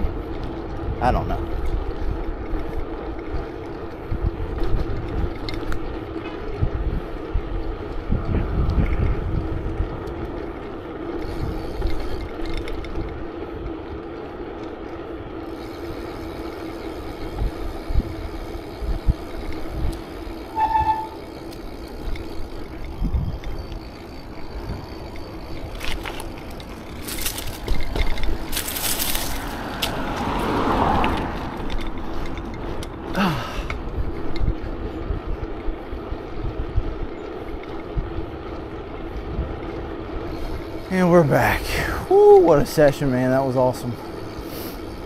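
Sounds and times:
bike tyre noise on pavement: 0.0 - 45.0
wind buffeting microphone: 0.0 - 45.0
brief pitched tone: 20.5 - 21.2.

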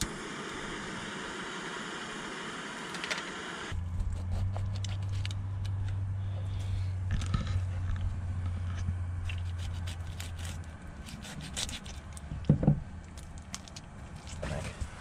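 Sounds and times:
low hum: 0.0 - 15.0
knife scraping fish: 4.0 - 5.3, 9.3 - 12.1.

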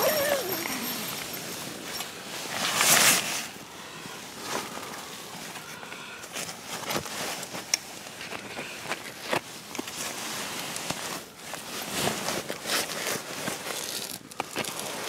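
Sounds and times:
nylon fabric rustling: 0.0 - 3.5.

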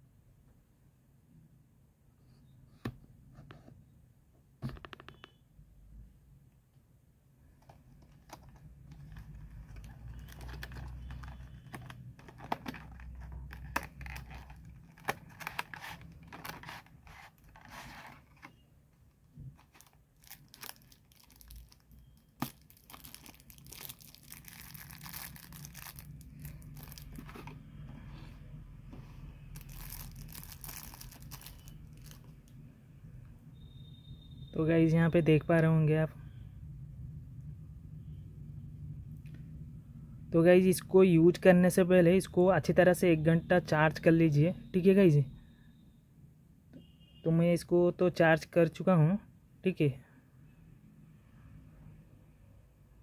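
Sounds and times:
plastic crinkling: 7.6 - 18.6, 19.4 - 27.6, 29.5 - 32.5.

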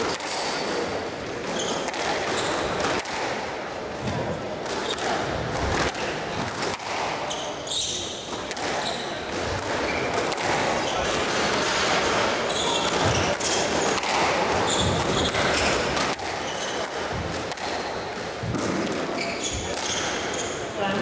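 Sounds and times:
squash ball struck by racquets: 0.0 - 21.0
shoes squeaking on court floor: 1.5 - 2.7, 7.2 - 17.9, 18.6 - 21.0.

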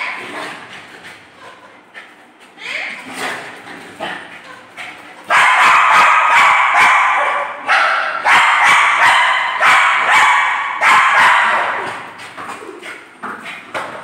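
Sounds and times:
small dog barking and yapping: 5.3 - 12.0.

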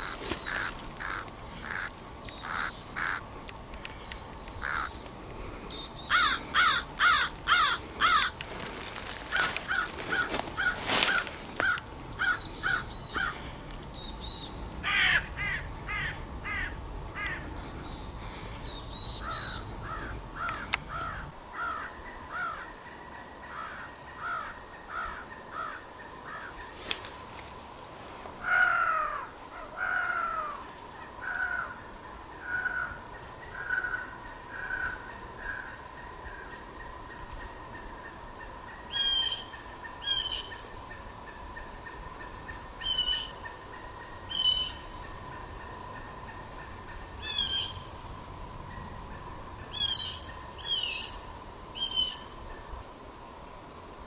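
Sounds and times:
squirrel barking calls: 0.0 - 17.6, 18.2 - 22.8, 31.2 - 51.2, 51.8 - 52.6.

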